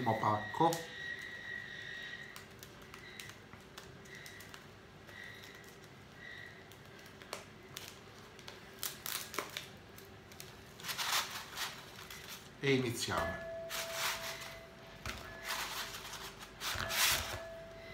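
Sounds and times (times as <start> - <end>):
plastic wrapper crinkling and tearing: 6.7 - 12.8.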